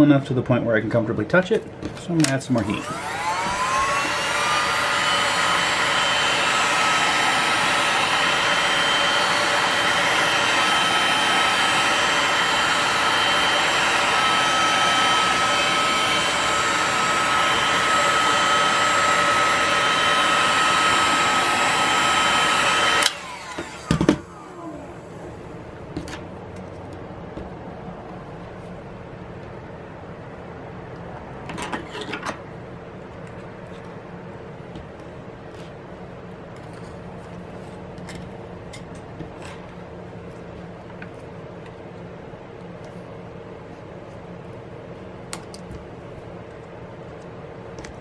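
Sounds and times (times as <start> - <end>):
heat gun fan whining: 1.3 - 30.3.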